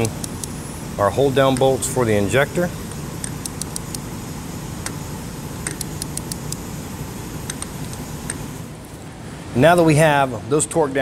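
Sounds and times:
torque wrench clicking: 0.0 - 0.6, 2.9 - 4.0, 5.6 - 6.6
steady background noise: 0.0 - 11.0.

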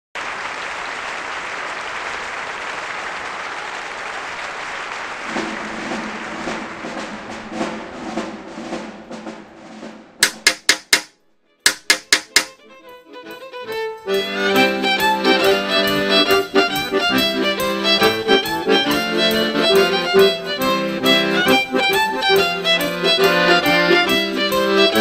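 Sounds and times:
applause: 0.1 - 7.8
sharp taps: 10.2 - 12.6.

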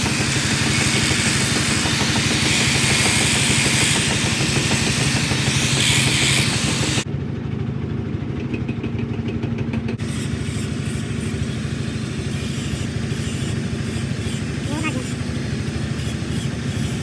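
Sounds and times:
angle grinder grinding steel: 0.0 - 7.0, 10.0 - 17.0
engine idling: 0.0 - 17.0.

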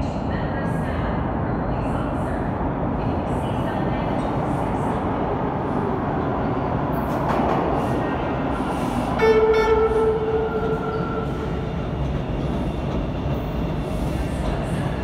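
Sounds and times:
subway train rumbling: 0.0 - 15.0
train horn blast: 9.2 - 11.4.

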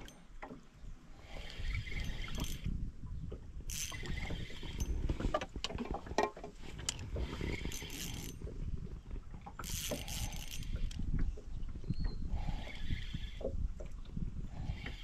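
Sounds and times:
wind and water against boat: 0.0 - 15.0
fishing reel clicking and whirring: 1.2 - 2.8, 3.7 - 5.3, 6.9 - 8.5, 9.6 - 11.2, 12.3 - 13.5.

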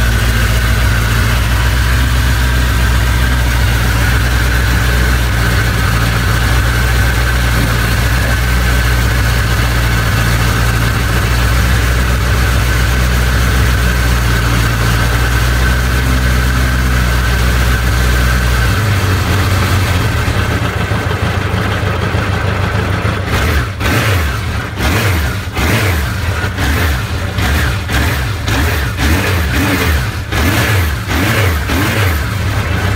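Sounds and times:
motorcycle engine idling and revving: 0.0 - 32.9.

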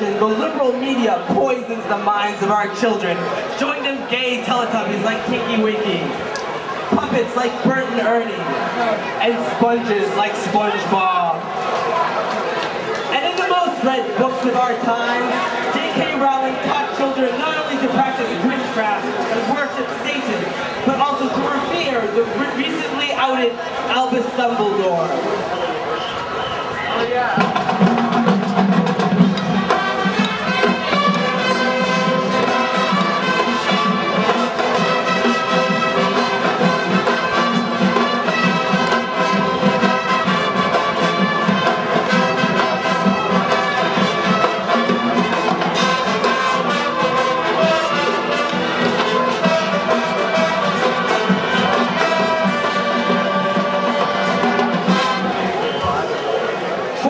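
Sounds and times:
marching band playing: 0.0 - 57.0.

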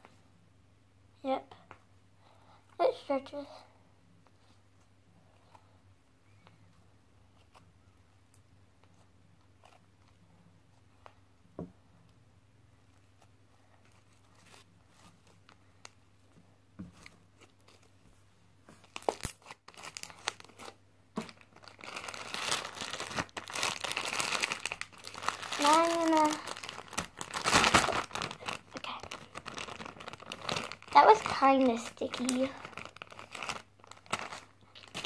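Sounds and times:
plastic wrapping crinkling: 18.7 - 35.0.

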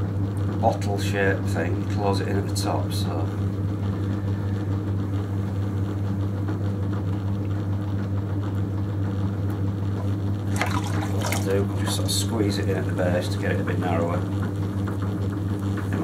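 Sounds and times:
potter's wheel humming: 0.0 - 16.0
wet clay squelching under hands: 10.5 - 11.8.

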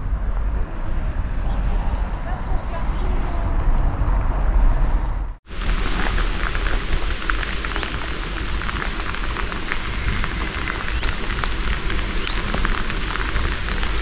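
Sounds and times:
wind rumbling on microphone: 0.0 - 14.0
crackling patter of ticks: 5.6 - 14.0.

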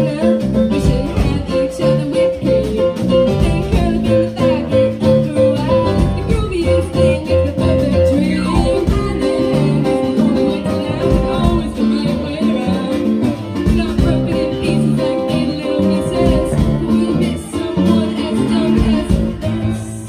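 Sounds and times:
electric bass guitar: 0.0 - 20.0
keyboard playing: 0.0 - 20.0
girls singing: 6.0 - 20.0.

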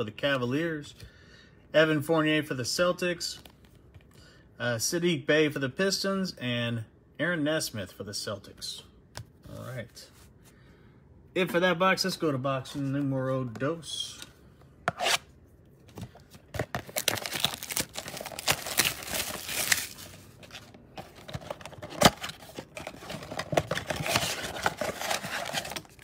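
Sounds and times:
plastic shrink-wrap crackling: 16.8 - 20.2.

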